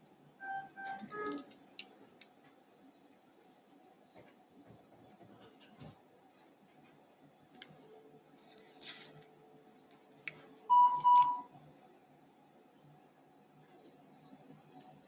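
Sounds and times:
faint steady tone: 0:09.4 - 0:15.0.

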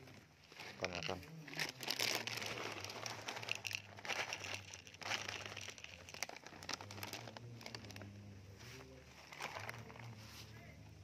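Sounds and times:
plastic pouch crinkling: 0:00.5 - 0:08.1, 0:09.1 - 0:10.2.

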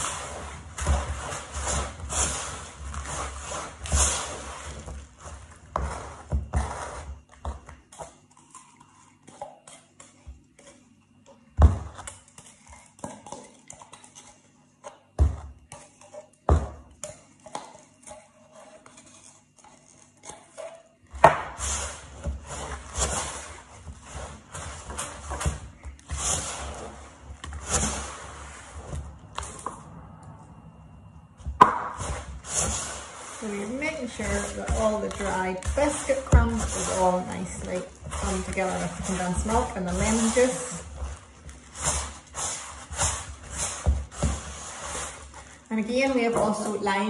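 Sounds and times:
spoon stirring in a plastic bowl: 0:00.0 - 0:30.4, 0:31.4 - 0:47.0.

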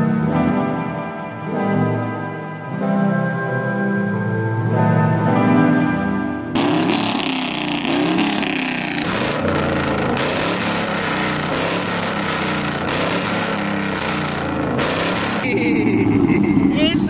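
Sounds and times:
engine idling with choppy lope: 0:06.6 - 0:17.0.

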